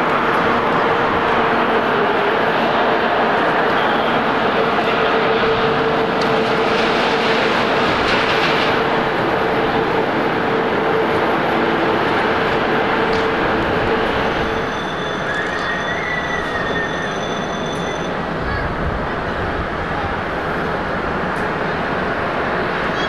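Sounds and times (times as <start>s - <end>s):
jet engine roar: 0.0s - 17.0s
rising jet engine whine: 0.0s - 23.0s.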